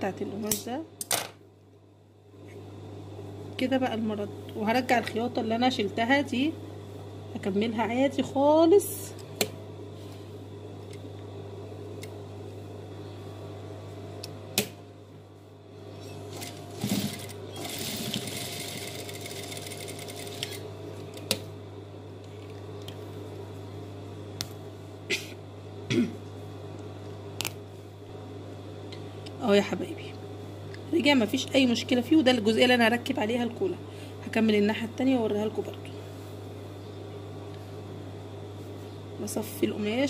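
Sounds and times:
sewing machine motor hum: 15.9s - 20.7s.

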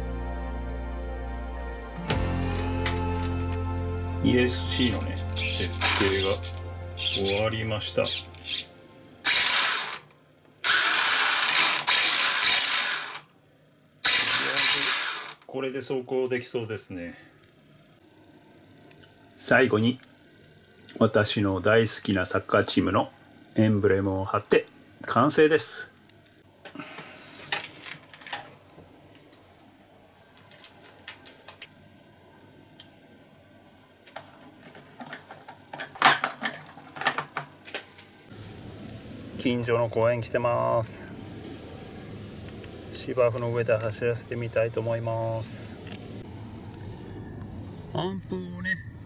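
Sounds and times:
electric motor driving gears: 5.2s - 7.4s, 9.2s - 13.3s, 14.0s - 15.4s
plastic packet crinkling: 27.6s - 28.5s.

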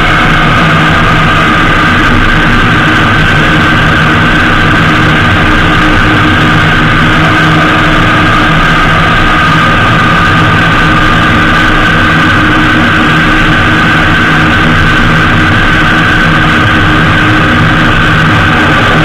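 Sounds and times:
motorcycle engine cruising: 0.0s - 19.0s
wind and road noise: 0.0s - 19.0s.

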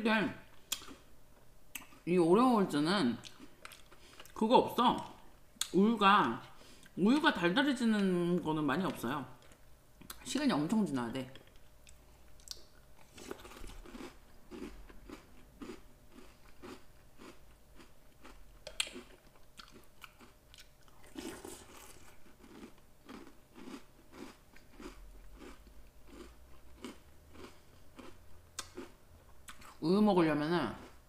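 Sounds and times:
crunchy chewing: 11.4s - 29.8s.

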